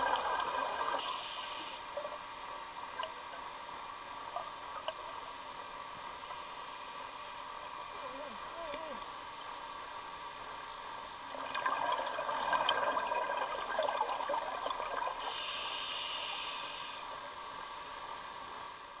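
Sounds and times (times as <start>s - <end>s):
exhaust bubbles underwater: 0.0s - 1.1s, 11.2s - 15.4s
regulator inhale hiss: 0.9s - 2.0s, 15.2s - 17.4s.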